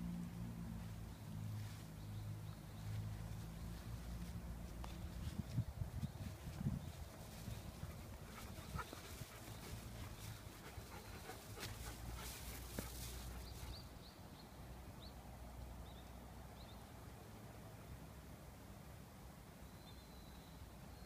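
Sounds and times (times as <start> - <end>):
dog panting: 8.2 - 13.8.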